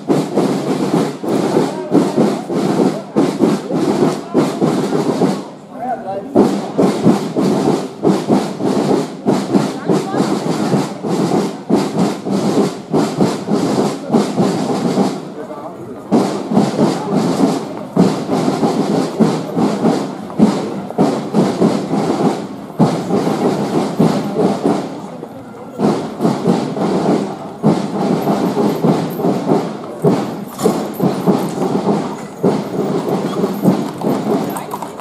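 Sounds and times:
crowd noise: 0.0 - 35.0
footsteps on pavement: 0.0 - 35.0
knocks and thuds: 25.8 - 35.0.

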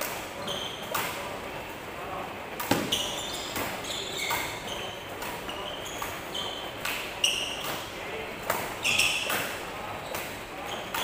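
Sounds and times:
court shoes squeaking: 0.0 - 1.3, 2.6 - 11.0
rackets striking shuttlecock: 2.6 - 4.6.

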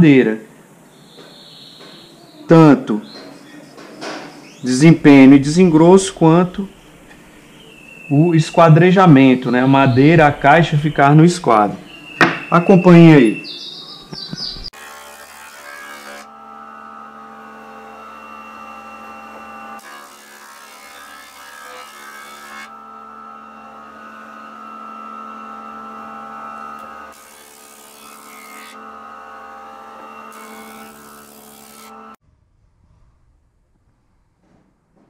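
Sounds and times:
jointer-planer humming: 14.2 - 32.2
board planing hiss: 14.7 - 16.4, 17.3 - 23.2, 23.8 - 32.2.

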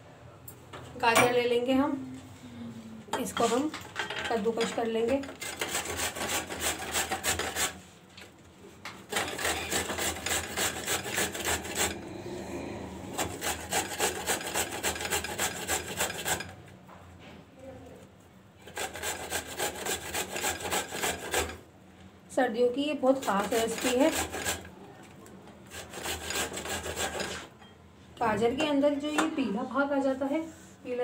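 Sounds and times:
carrot grating on metal grater: 4.6 - 7.8, 9.0 - 12.0, 13.1 - 16.6, 18.6 - 21.6, 23.0 - 24.7, 25.6 - 27.5.

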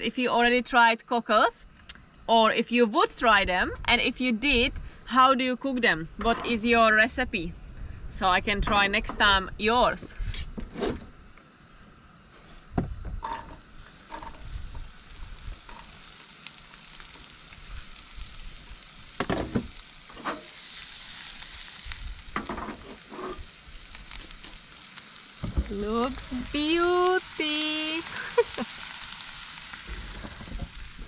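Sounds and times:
onion and garlic sizzling in oil: 13.2 - 31.0.

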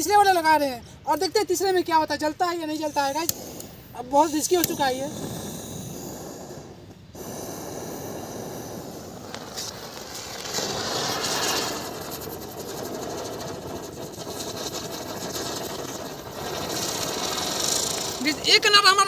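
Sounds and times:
firework hissing sparks: 0.0 - 19.0.

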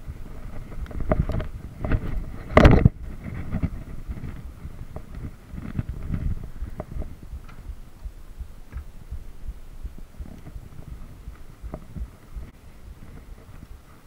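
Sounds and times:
bike tyres rumbling on dirt: 0.0 - 14.0
bike thumps and clicks: 8.7 - 9.0.

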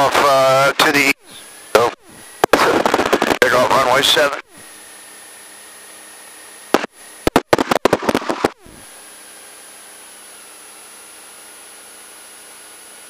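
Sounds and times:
static crackles and pops: 0.0 - 4.4, 6.7 - 8.7
radio hiss: 0.0 - 5.0, 6.7 - 8.9.

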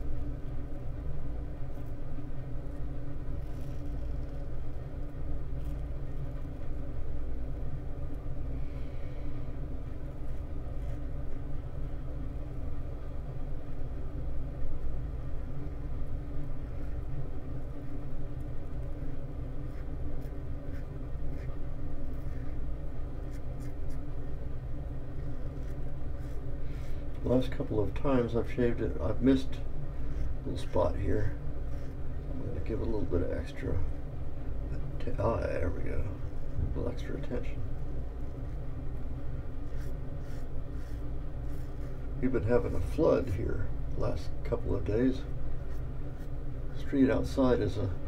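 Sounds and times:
low mechanical hum: 0.0 - 48.0
razor scraping stubble: 3.2 - 4.9, 39.6 - 42.9.

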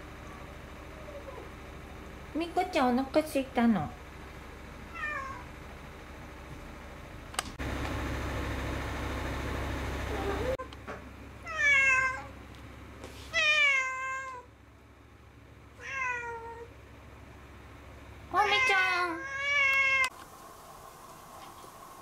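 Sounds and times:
noisy rumble: 0.0 - 11.5
cat meowing: 4.9 - 5.5, 11.4 - 12.3, 13.3 - 14.5, 15.8 - 16.7, 18.4 - 20.1.

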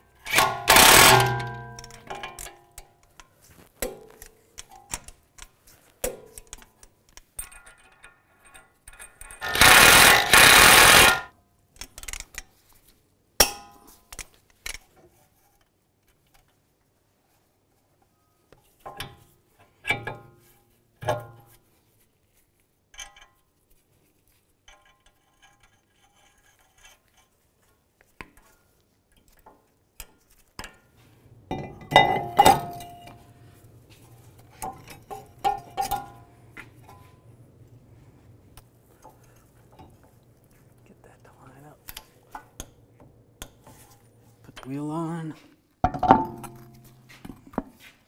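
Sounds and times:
low steady hum: 31.0 - 47.5.

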